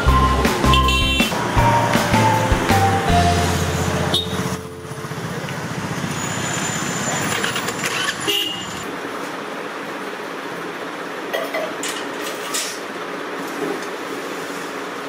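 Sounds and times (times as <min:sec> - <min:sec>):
street traffic din: 0:00.0 - 0:09.0
vehicle horns honking: 0:00.7 - 0:01.5, 0:03.0 - 0:05.2, 0:08.2 - 0:08.9.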